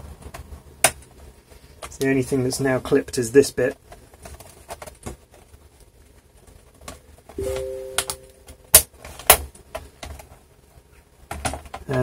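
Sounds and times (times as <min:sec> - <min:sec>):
two-note electronic tone: 0:07.4 - 0:08.7.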